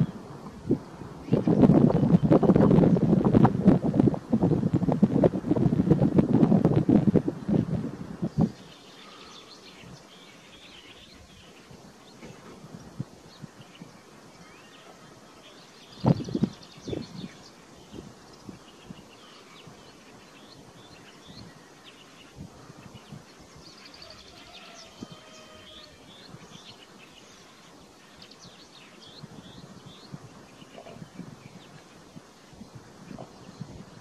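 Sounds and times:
faint outdoor hiss: 0.0s - 34.0s
small birds chirping: 8.2s - 34.0s.

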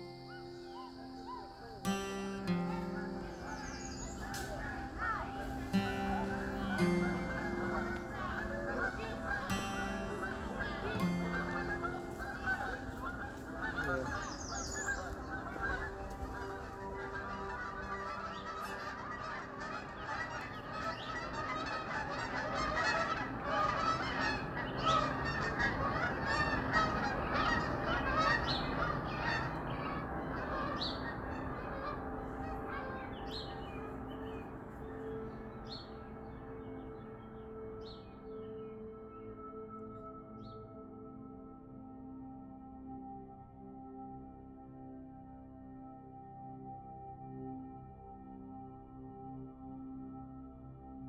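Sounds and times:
geese honking: 0.0s - 38.9s
low musical drone: 0.0s - 51.0s.

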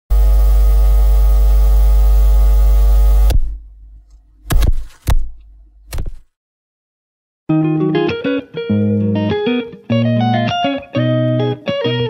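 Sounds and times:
electronic buzzing hum with hiss: 0.1s - 3.7s.

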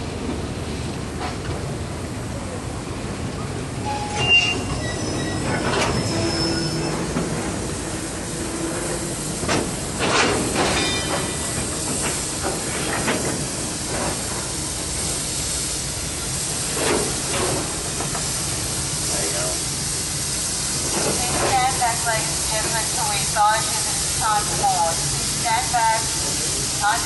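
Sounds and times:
high wheel squeals: 3.8s - 7.5s
steam hissing: 3.8s - 27.0s
train knocking: 4.0s - 27.0s.

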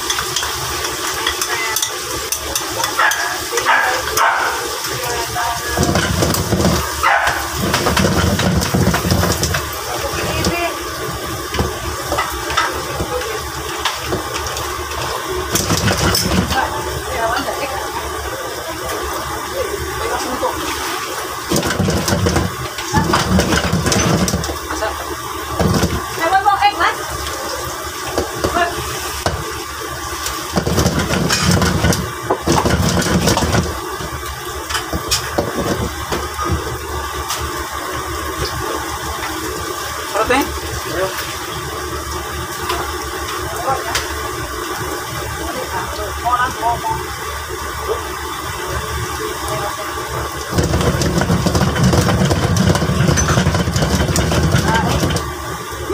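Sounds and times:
gas burner roaring: 0.0s - 55.9s
clattering: 5.8s - 10.6s, 21.5s - 24.6s, 30.6s - 34.1s, 50.6s - 55.3s.

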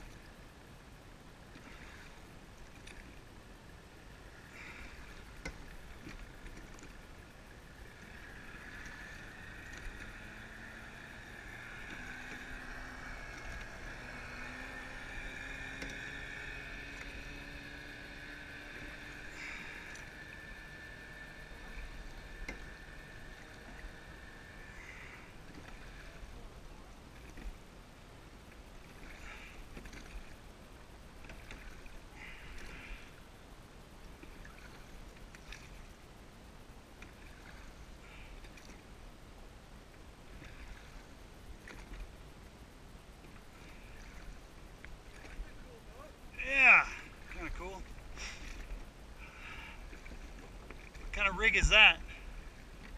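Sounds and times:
water rushing along hull: 0.0s - 52.9s
short splashes: 7.7s - 20.5s, 28.8s - 30.4s, 43.2s - 52.9s
steady high whine: 39.0s - 52.9s.

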